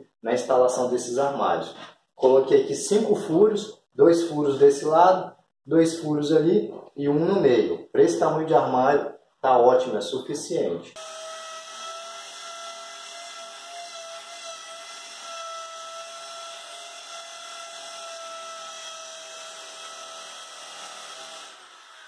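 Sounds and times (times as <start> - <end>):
electric drill boring into tile: 11.0 - 22.0.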